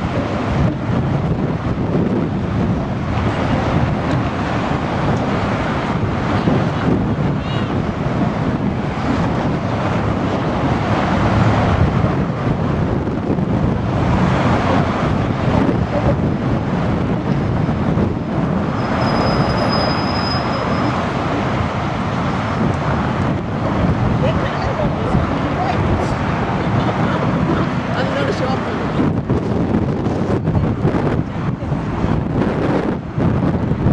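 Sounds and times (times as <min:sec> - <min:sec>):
cable car rumbling on rails: 0:00.0 - 0:33.9
faint high squeal: 0:18.8 - 0:21.0.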